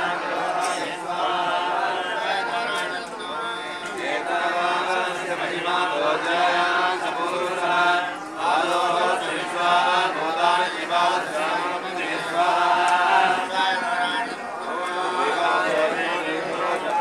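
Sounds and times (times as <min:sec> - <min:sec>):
group of voices chanting: 0:00.0 - 0:17.0.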